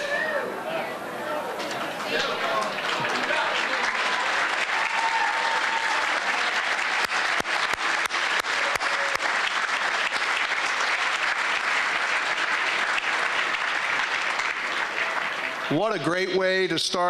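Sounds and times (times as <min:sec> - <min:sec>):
audience applauding: 0:01.8 - 0:17.0.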